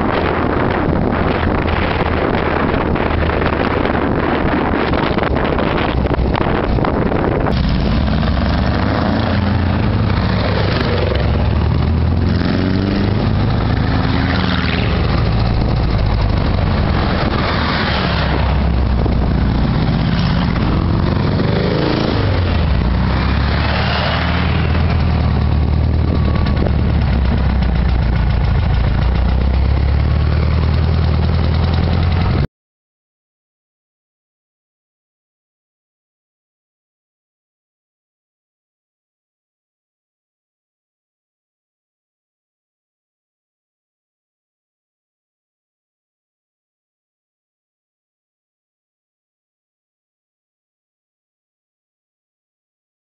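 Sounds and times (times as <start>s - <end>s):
wind rushing over microphone: 0.0s - 29.2s
engine droning: 0.0s - 32.5s.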